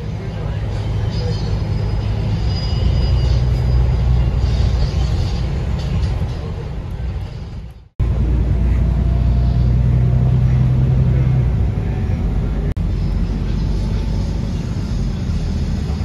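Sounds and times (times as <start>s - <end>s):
bus engine drone: 0.0s - 16.0s
low engine hum: 0.0s - 16.0s
road rumble: 0.0s - 16.0s.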